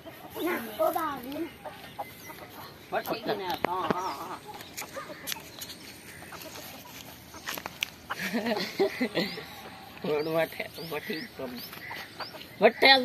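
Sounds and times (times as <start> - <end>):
rooster clucking: 0.0 - 10.2
faint outdoor sounds: 0.0 - 13.0.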